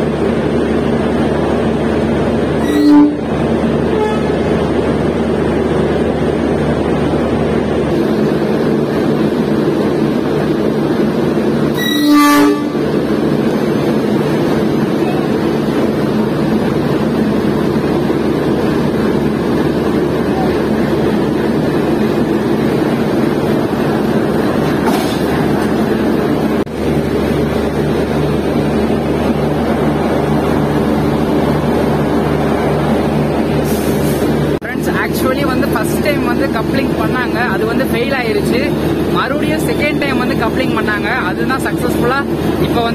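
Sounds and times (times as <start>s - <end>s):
locomotive engine running: 0.0s - 42.9s
short train horn toot: 2.6s - 3.3s, 3.9s - 4.4s, 11.8s - 12.8s.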